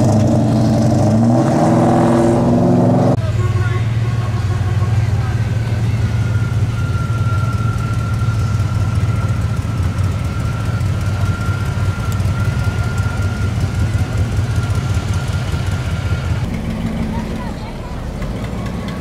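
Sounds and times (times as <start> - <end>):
car engine idling: 2.8 - 19.0.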